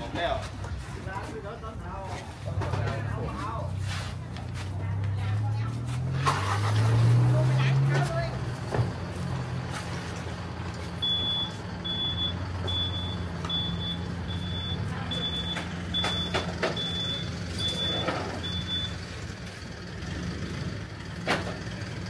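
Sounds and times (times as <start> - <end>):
idling engine hum: 0.0 - 22.0
reversing alarm beeping: 11.0 - 19.0.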